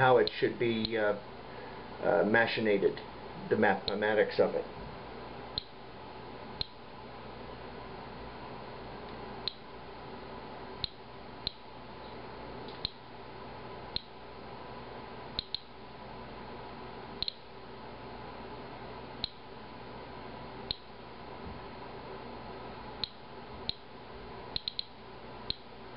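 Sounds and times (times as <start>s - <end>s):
low room hum: 0.0s - 25.9s
geiger counter clicking chirps: 5.6s - 5.8s, 6.6s - 6.8s, 9.4s - 9.7s, 10.8s - 11.7s, 12.8s - 13.0s, 13.9s - 14.2s, 15.4s - 15.8s, 17.2s - 17.5s, 19.2s - 19.4s, 20.7s - 20.9s, 23.0s - 23.9s, 24.5s - 25.7s.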